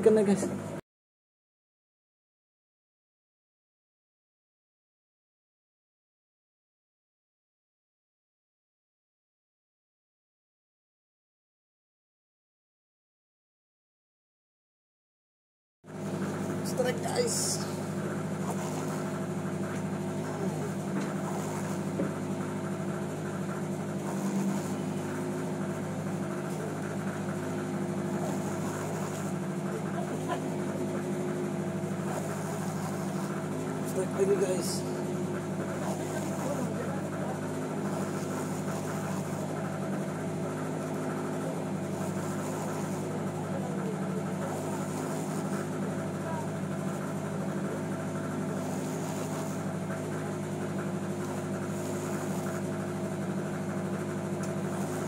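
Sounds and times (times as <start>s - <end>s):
boat engine droning: 0.0s - 0.8s, 15.9s - 55.0s.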